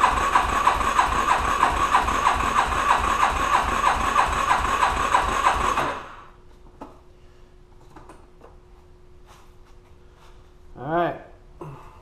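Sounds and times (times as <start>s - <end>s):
engine cranking on starter: 0.0s - 6.3s.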